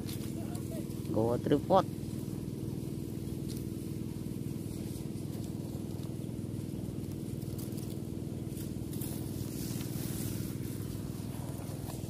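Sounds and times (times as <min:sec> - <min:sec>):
low pulsing mechanical hum: 0:00.0 - 0:12.0.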